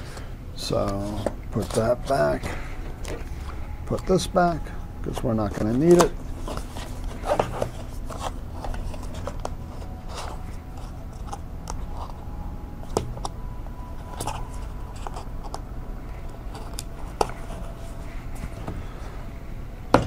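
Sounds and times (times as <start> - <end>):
cardboard rustling and scraping: 0.8 - 3.3, 3.9 - 12.1.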